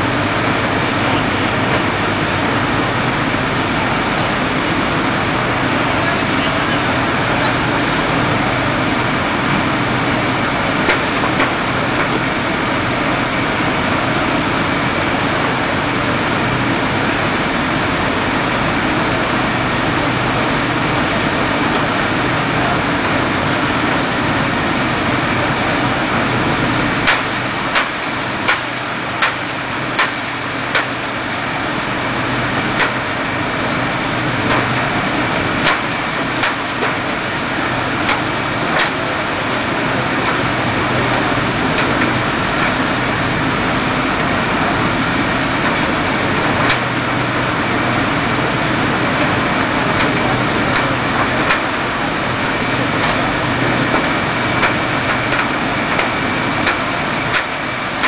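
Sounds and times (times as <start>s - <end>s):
fire engine pump humming: 0.0s - 58.0s.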